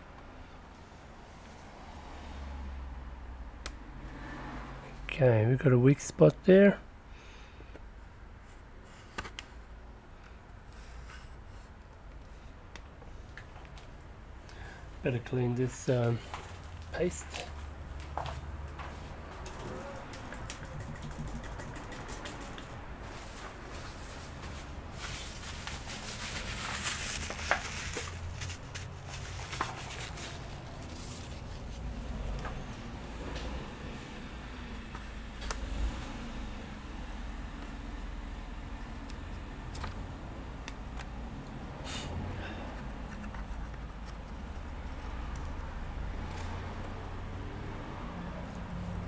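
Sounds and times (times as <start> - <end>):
steady rustle: 18.9 - 42.1
sharp plastic clicks: 20.1 - 22.7.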